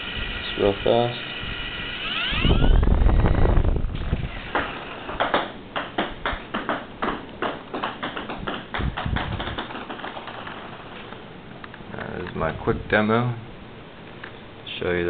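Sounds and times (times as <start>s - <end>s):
toy helicopter motor winding down: 0.0s - 5.1s
rotor ticking: 0.0s - 5.3s.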